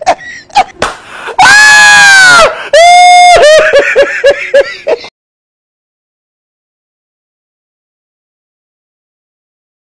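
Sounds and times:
person screaming: 0:01.4 - 0:03.6
person laughing: 0:02.8 - 0:05.1.

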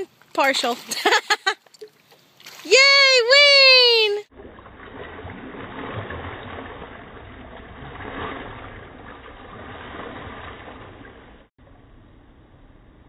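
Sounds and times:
pool water splashing: 0:00.4 - 0:11.5
steady low rumble: 0:04.3 - 0:13.0.

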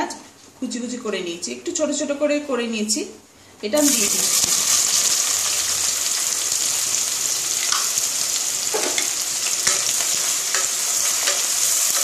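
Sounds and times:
onions sizzling in oil: 0:03.8 - 0:12.0.

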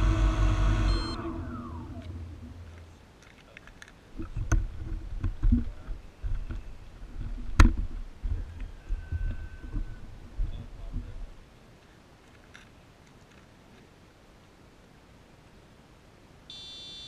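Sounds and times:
drone motor hum: 0:00.0 - 0:02.8.

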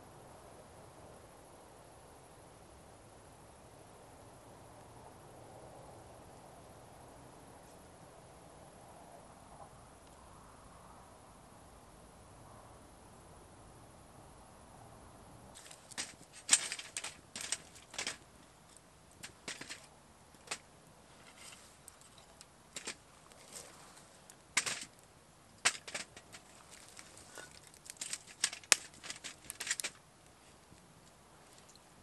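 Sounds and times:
wood fire crackling and popping: 0:24.2 - 0:30.4.

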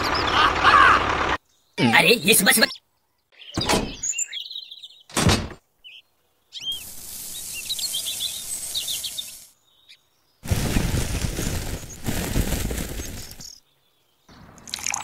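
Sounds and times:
birds chirping: 0:00.0 - 0:15.0
loud thunk: 0:03.6 - 0:04.0, 0:05.1 - 0:05.6
sand pouring hiss: 0:06.6 - 0:09.6, 0:10.4 - 0:13.6.

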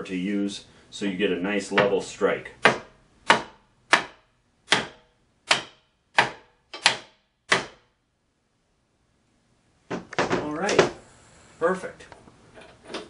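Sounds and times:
hammer tapping wooden board: 0:02.6 - 0:07.8.

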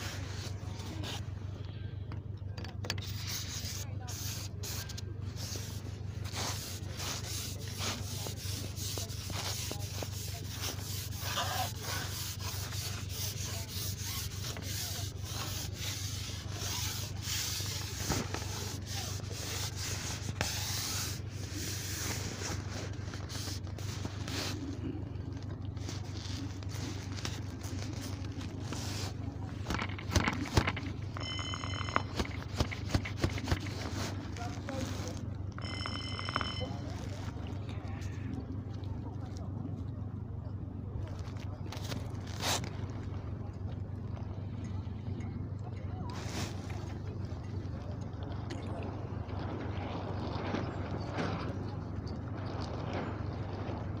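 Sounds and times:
low steady hum: 0:00.0 - 0:54.0
small crackles: 0:02.9 - 0:39.8, 0:41.0 - 0:43.2
scratchy rubbing noise: 0:03.0 - 0:24.7, 0:25.8 - 0:37.4
high-pitched tone: 0:31.2 - 0:32.2, 0:35.5 - 0:37.1.

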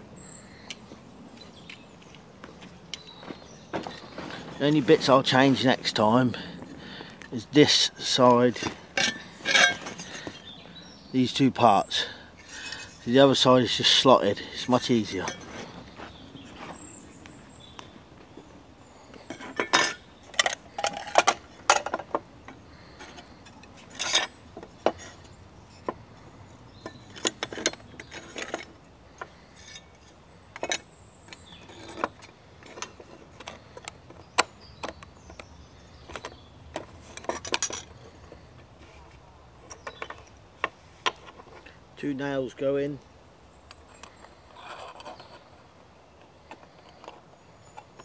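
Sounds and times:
sheet metal pieces clinking: 0:09.0 - 0:10.3.

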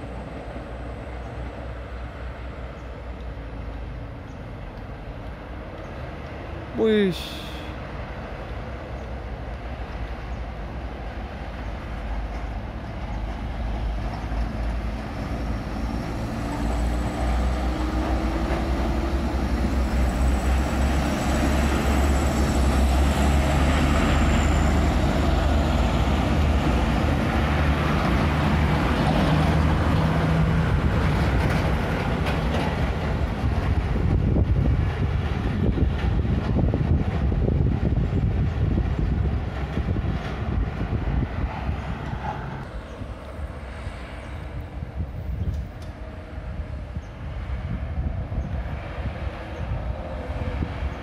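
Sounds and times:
truck diesel engines rumbling: 0:00.0 - 0:51.0.

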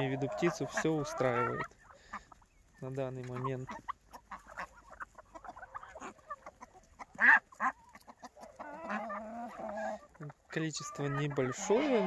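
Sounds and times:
chickens clucking and calling: 0:00.0 - 0:12.0.

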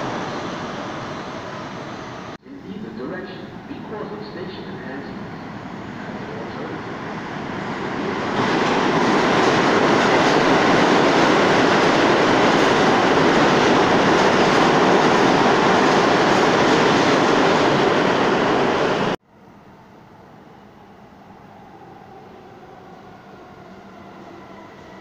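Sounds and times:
subway train running past: 0:00.0 - 0:25.0.

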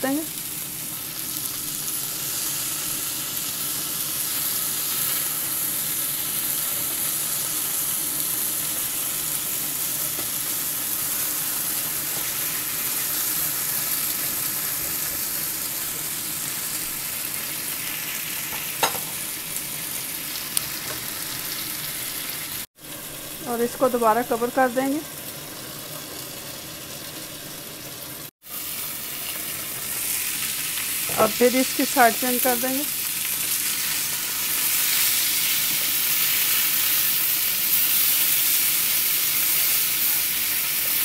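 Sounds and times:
chicken sizzling in a grill pan: 0:00.0 - 0:41.0.

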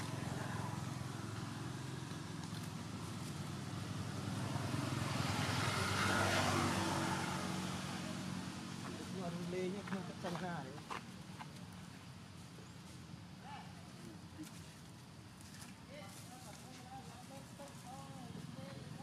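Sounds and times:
vehicle engine passing by: 0:00.0 - 0:10.7.

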